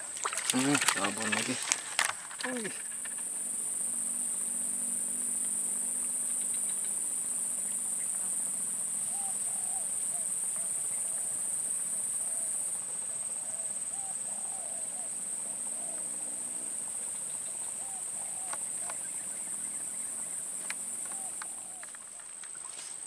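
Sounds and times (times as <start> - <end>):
faint short calls: 0.0 - 3.4
insects chorus: 0.0 - 23.0.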